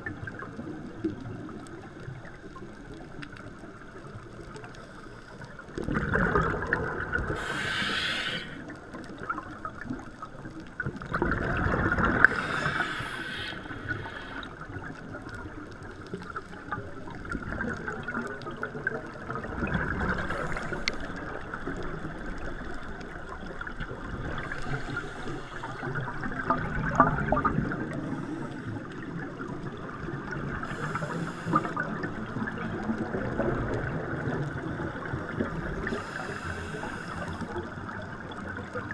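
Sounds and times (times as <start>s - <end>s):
steady underwater hiss: 0.0s - 38.9s
exhaled air bubbling: 5.4s - 38.9s
scuba regulator inhale hiss: 7.3s - 8.8s, 12.2s - 14.6s, 24.4s - 26.0s, 30.6s - 31.8s, 35.8s - 37.6s.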